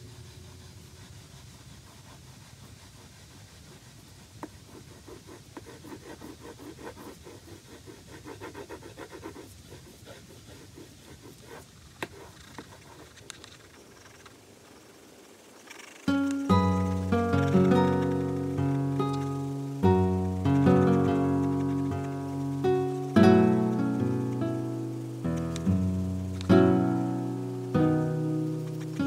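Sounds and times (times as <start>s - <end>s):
pencil scratching on paper: 0.4s - 13.4s.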